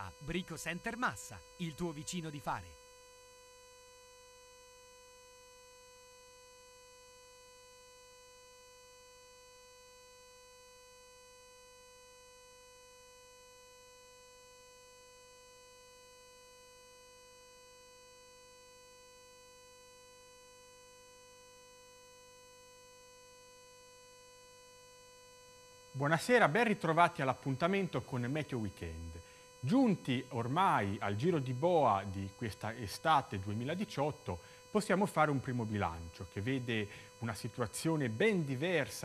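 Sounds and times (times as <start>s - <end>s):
faint electrical hum: 0.0s - 15.6s, 23.7s - 39.0s.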